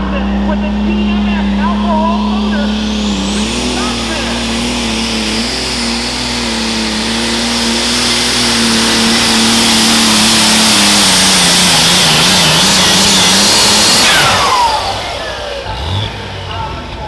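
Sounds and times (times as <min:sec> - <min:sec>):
turbocharger whistle spooling down: 0:00.0 - 0:16.0
tractor engine at full power: 0:00.0 - 0:17.0.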